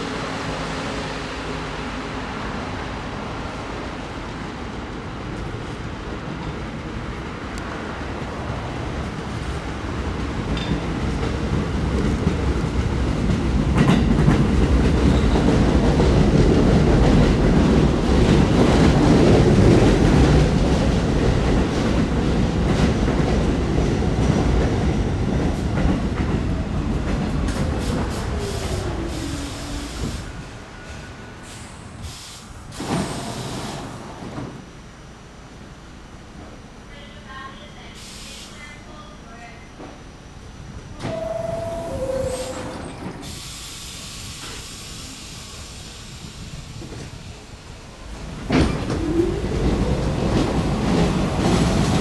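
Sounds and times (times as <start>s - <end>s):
subway train rumble and clatter: 0.0s - 52.0s
train doors opening: 10.2s - 22.0s, 25.4s - 34.7s, 40.8s - 52.0s
train brakes whining: 41.0s - 47.0s.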